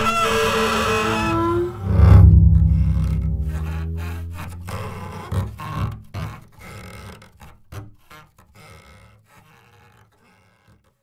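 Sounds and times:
rubbing scrapes on double bass: 1.1 - 5.6
double bass deep note: 1.6 - 5.6.

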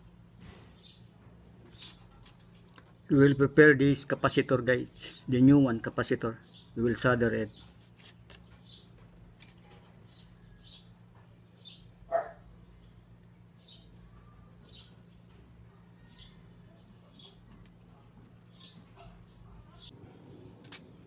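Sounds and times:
low steady hum: 0.0 - 21.0
faint bird chirping: 8.5 - 21.0.

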